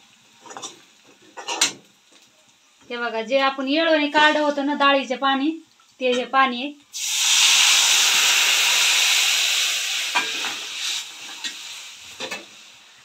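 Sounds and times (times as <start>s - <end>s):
liquid sizzling in hot oil: 0.0s - 2.9s, 6.8s - 13.0s.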